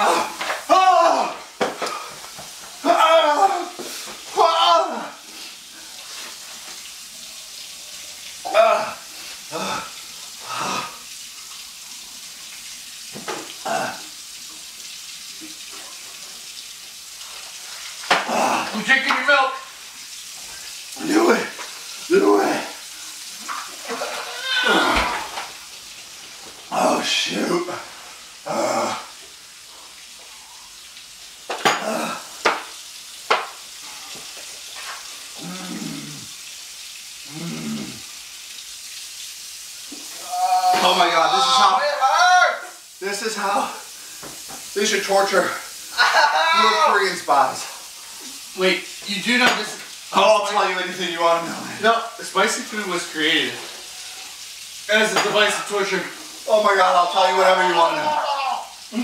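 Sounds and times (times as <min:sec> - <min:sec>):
man groaning in pain: 0:00.0 - 0:01.5, 0:02.8 - 0:03.8, 0:04.4 - 0:05.2, 0:08.4 - 0:11.0, 0:13.6 - 0:14.1, 0:18.1 - 0:18.8, 0:23.9 - 0:25.4, 0:28.4 - 0:29.1, 0:31.7 - 0:32.3, 0:35.4 - 0:36.3, 0:37.3 - 0:38.0, 0:40.2 - 0:42.4, 0:57.8 - 0:59.0
steady hiss: 0:00.0 - 0:59.0
man's muffled groans: 0:08.5 - 0:09.9, 0:28.5 - 0:29.1, 0:35.4 - 0:36.3, 0:37.3 - 0:38.0, 0:40.2 - 0:40.8.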